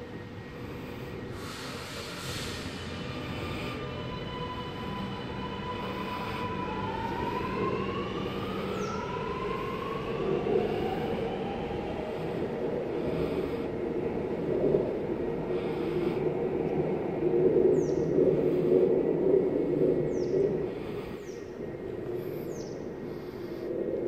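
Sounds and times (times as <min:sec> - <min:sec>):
train motors whining: 0:00.0 - 0:16.1
train rumbling: 0:00.0 - 0:24.0
bird chirping: 0:22.3 - 0:23.6.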